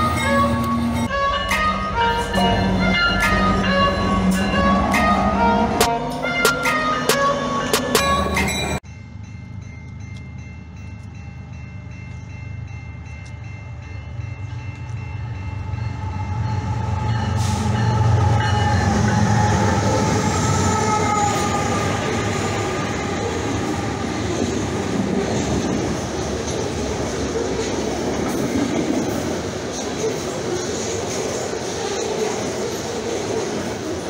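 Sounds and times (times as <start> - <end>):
locomotive horn: 0.0 - 8.4, 16.0 - 24.3
crossing warning bell ringing: 0.0 - 27.4
diesel locomotive rumble: 0.0 - 34.0.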